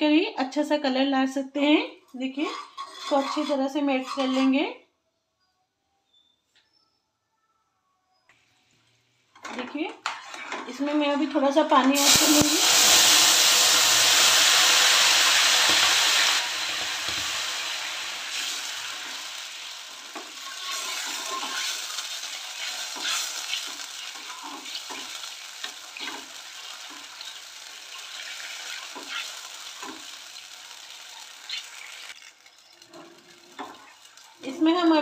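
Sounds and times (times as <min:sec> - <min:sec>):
metal spoon clinking and scraping pan: 0:02.3 - 0:04.6, 0:18.4 - 0:30.2, 0:31.4 - 0:34.4
water sizzling on hot sugar: 0:11.8 - 0:35.0.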